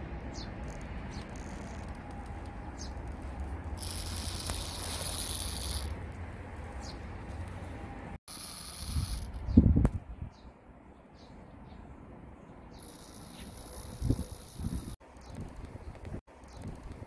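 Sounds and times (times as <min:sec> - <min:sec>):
high hissing buzz: 0:03.7 - 0:06.1, 0:08.3 - 0:09.6
wind rumble on microphone: 0:08.8 - 0:10.5, 0:13.6 - 0:17.0
small birds chirping: 0:08.9 - 0:17.0.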